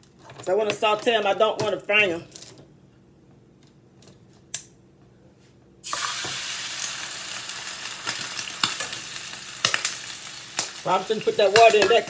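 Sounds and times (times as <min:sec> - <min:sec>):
onions sizzling in hot oil: 0:05.8 - 0:12.0.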